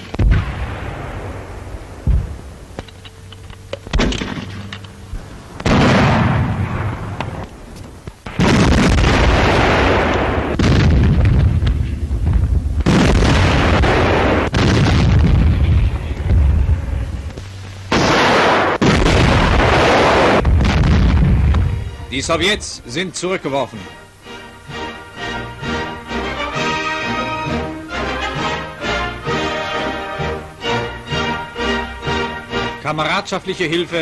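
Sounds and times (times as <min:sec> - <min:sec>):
lighter gunfire cracks: 0:00.0 - 0:05.0, 0:05.6 - 0:15.7, 0:17.9 - 0:21.8
heavy artillery blasts rumbling: 0:00.0 - 0:23.2.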